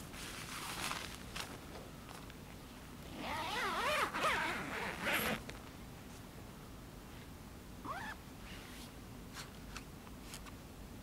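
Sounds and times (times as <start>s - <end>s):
fabric rustling: 0.1s - 1.6s
zipper being pulled: 3.1s - 5.4s.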